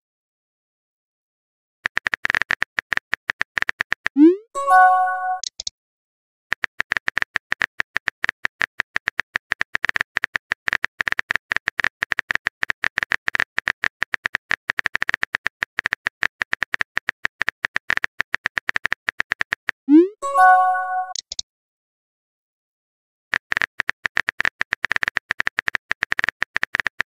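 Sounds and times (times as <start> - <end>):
phone keyboard typing clicks: 1.9 - 4.2, 4.8 - 5.7, 20.4 - 21.4, 23.4 - 27.0.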